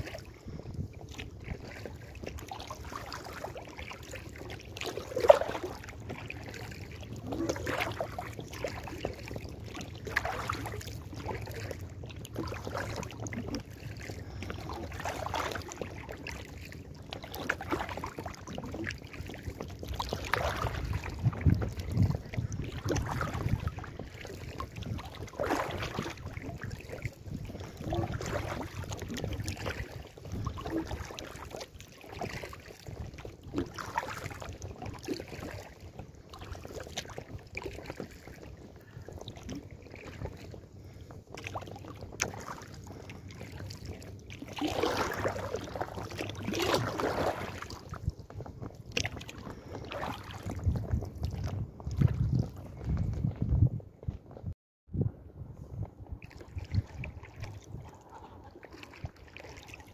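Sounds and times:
wind on microphone: 0.0s - 4.1s, 17.4s - 59.9s
paddle splashing and dripping: 0.0s - 53.4s, 55.9s - 59.9s.

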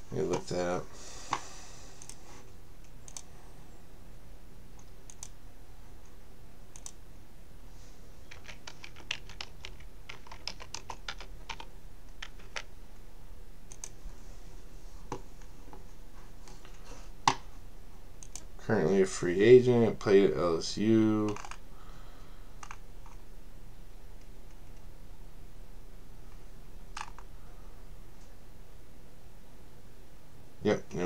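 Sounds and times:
typing on computer keyboard: 8.3s - 12.7s.

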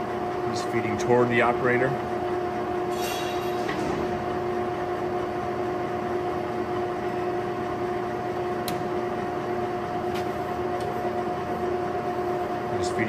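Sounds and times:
lathe humming and whining: 0.0s - 13.0s.

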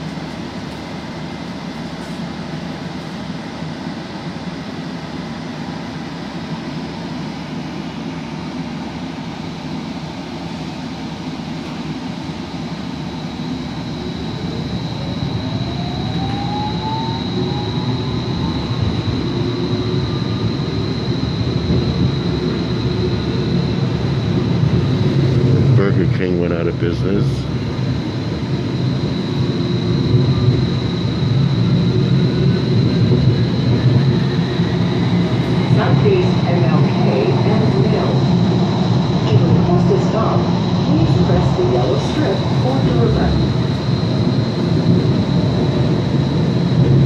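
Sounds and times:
streetcar running: 0.0s - 47.0s
thin high whine: 13.2s - 24.5s
motor whine rising in pitch: 13.7s - 23.8s.

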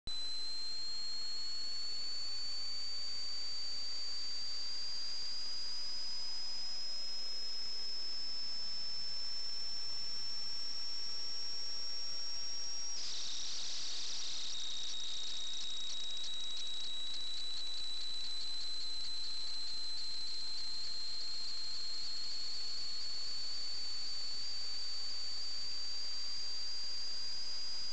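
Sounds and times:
thin high electronic whine: 0.1s - 27.9s
crackling noise: 12.6s - 22.5s
steady hiss: 13.0s - 16.4s.

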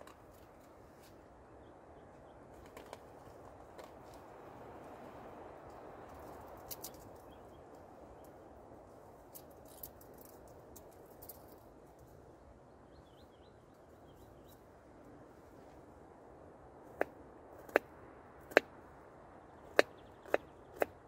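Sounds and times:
bird chirping: 6.0s - 8.5s, 11.2s - 14.7s, 19.2s - 21.0s.

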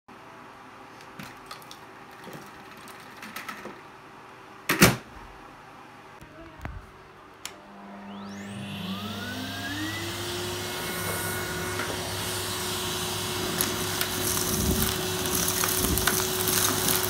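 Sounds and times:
vacuum cleaner motor whining: 7.5s - 17.0s.

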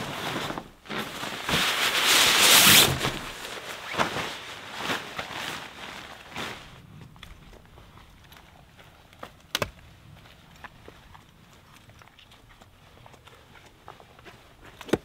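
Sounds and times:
tarp snapping: 0.0s - 7.5s, 9.2s - 9.9s
tarp rustling and crinkling: 0.0s - 15.0s.

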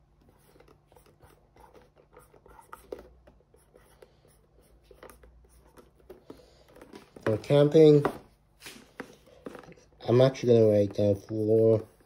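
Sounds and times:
marker scratching on paper: 0.3s - 6.3s, 9.4s - 12.0s.

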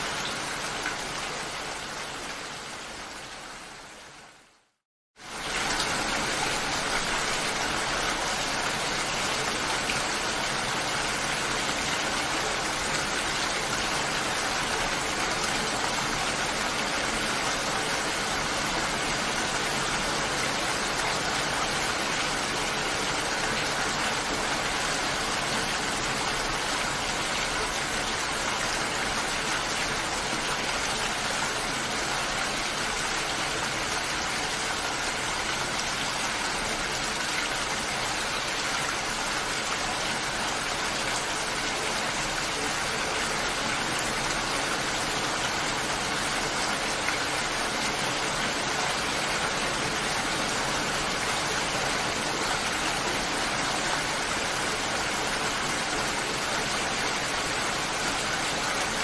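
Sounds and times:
steady rain hiss: 0.0s - 59.0s.

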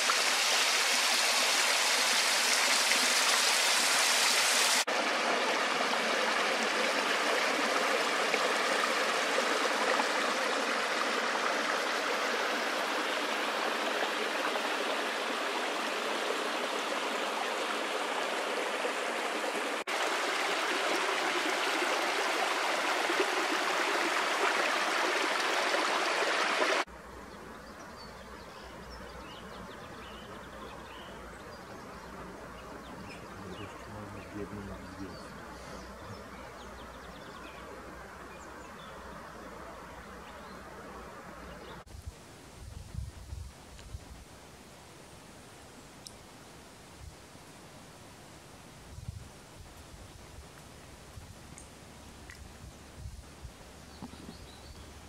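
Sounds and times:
stream rushing over rocks: 0.0s - 26.9s.

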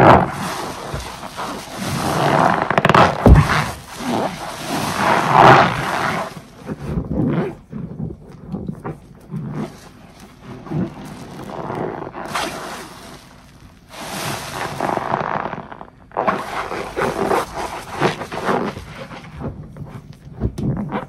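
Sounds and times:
sponge squelching in suds: 0.0s - 21.0s
foam hissing and fizzing: 0.2s - 6.6s, 10.8s - 15.5s.

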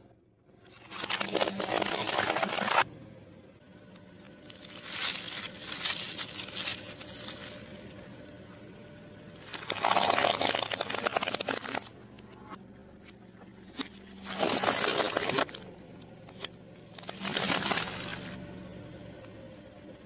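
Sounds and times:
low steady hum: 0.0s - 20.0s
plastic toys crackling and snapping: 3.9s - 7.8s, 9.4s - 11.9s, 13.8s - 18.2s.

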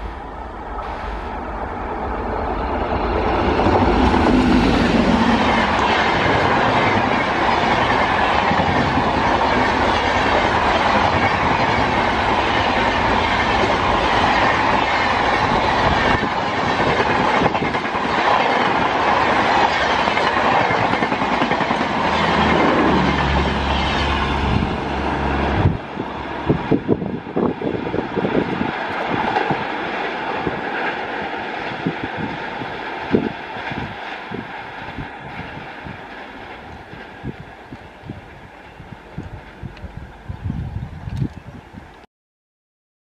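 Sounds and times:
train wheels running on rails: 0.0s - 42.0s.

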